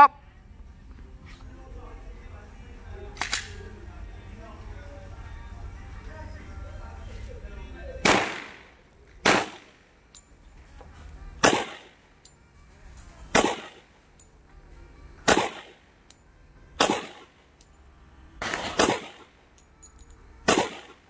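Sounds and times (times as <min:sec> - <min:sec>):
pistol shots with echo: 0:08.0 - 0:09.8, 0:11.4 - 0:12.0, 0:13.3 - 0:14.0, 0:15.2 - 0:15.9, 0:16.8 - 0:17.4, 0:18.4 - 0:19.4, 0:20.4 - 0:21.0.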